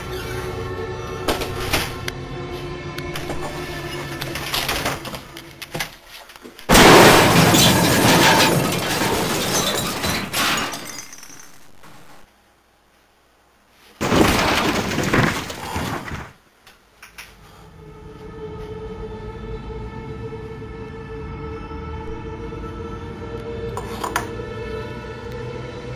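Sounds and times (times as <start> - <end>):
shattering crashes: 6.7 - 12.2, 14.0 - 16.4.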